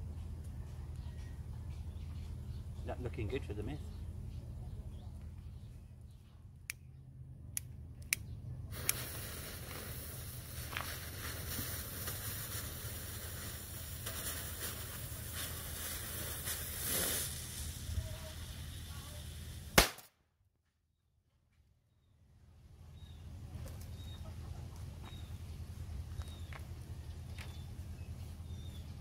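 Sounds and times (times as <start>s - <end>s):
sharp clicks: 7.5s - 9.0s
fuse burning with sparking hiss: 8.7s - 20.1s.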